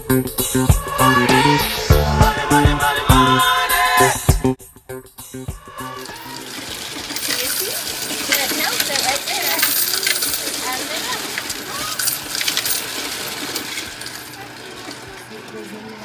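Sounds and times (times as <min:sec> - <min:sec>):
coins clattering through counter: 0:05.9 - 0:16.0.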